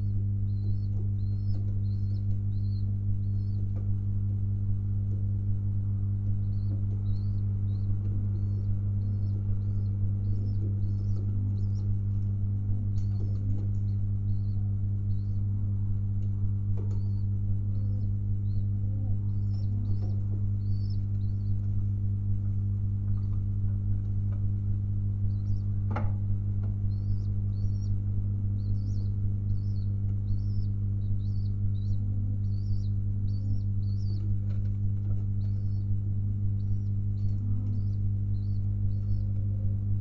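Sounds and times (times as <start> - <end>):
faint high chirps: 0.0 - 3.8, 6.4 - 15.6, 16.8 - 21.7, 26.9 - 35.9, 36.6 - 39.4
low electrical hum: 0.0 - 40.0
pigeons cooing: 6.4 - 23.4, 26.7 - 39.5.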